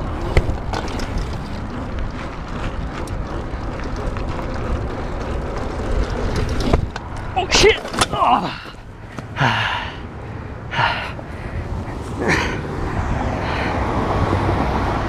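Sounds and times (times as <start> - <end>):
wind noise on microphone: 0.0 - 7.4
bicycle clicks and rattles: 0.0 - 9.7.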